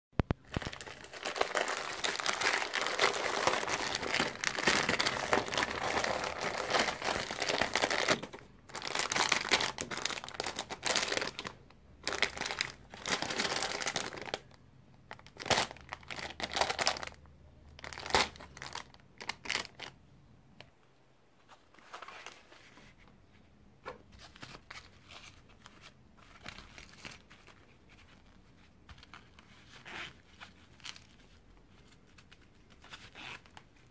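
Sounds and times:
plastic packaging crinkling: 0.2s - 17.2s, 17.8s - 20.0s.

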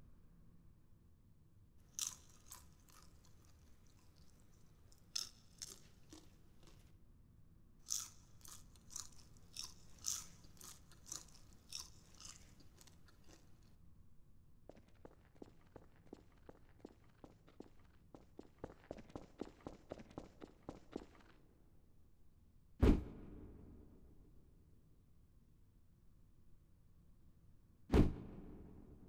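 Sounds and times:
chips being crunched: 1.9s - 6.9s, 7.9s - 13.7s.

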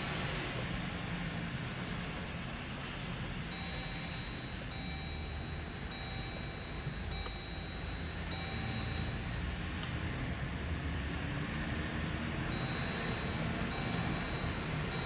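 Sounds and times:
vehicle rumbling at low speed: 0.0s - 15.0s
electronic warning chime: 3.4s - 9.6s, 12.5s - 15.0s.

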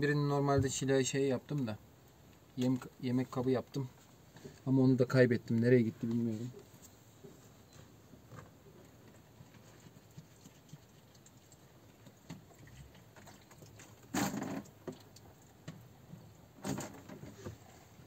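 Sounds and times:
clicks and rustles of objects: 5.5s - 17.8s.

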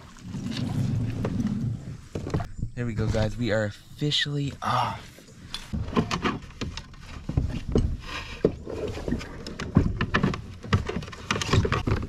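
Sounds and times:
knocks and thumps in kayak: 0.0s - 3.5s, 5.7s - 12.0s.

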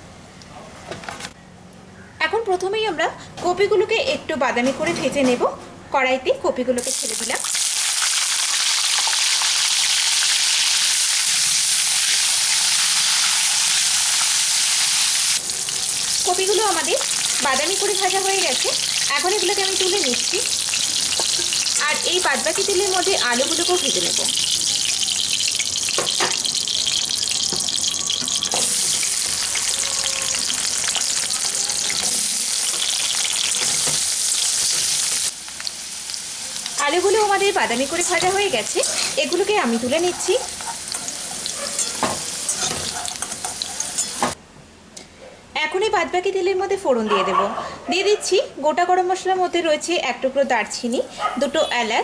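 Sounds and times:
cauliflower sizzling in hot oil: 6.8s - 44.4s.

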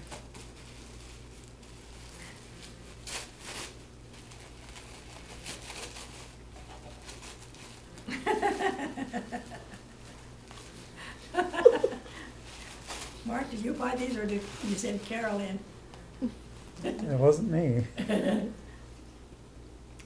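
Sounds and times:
gift wrapping crinkling and tearing: 0.0s - 9.4s, 10.2s - 15.6s.

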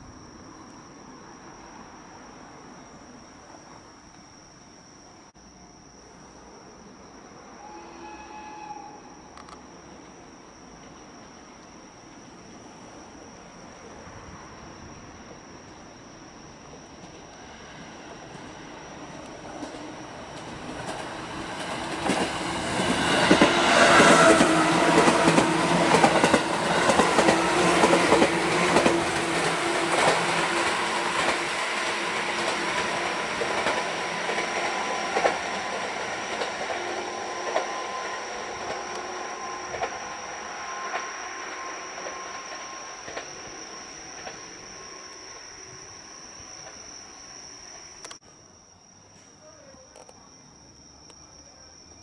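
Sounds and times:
train wheels clacking on rail joints: 19.2s - 40.2s, 41.9s - 44.5s.

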